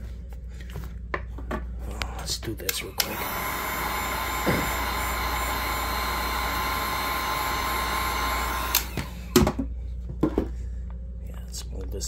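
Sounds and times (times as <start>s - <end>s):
heat gun blowing: 3.0s - 9.4s.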